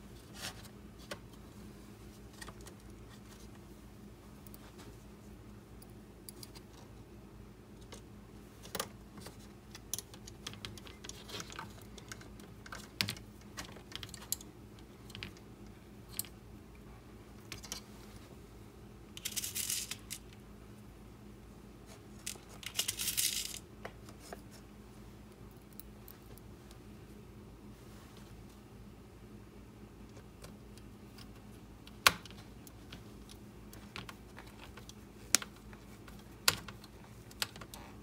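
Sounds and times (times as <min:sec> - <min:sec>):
small screws clicking and tapping: 0:09.7 - 0:15.4, 0:22.2 - 0:23.6.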